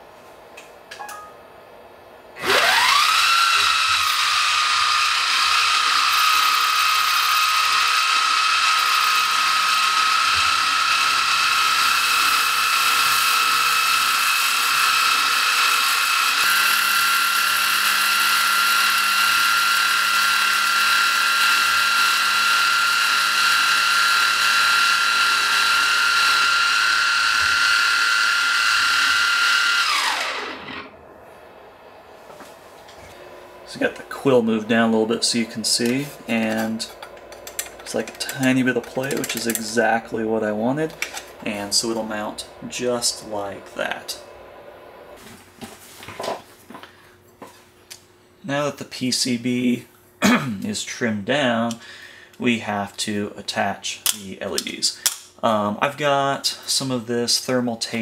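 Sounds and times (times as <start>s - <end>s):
mill spindle whine: 1.9s - 48.0s.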